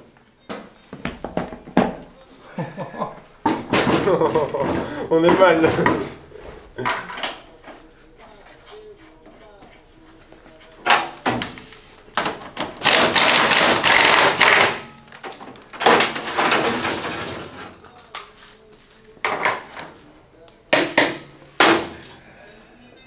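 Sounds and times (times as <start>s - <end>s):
rattling tool bursts: 12.8s - 14.8s.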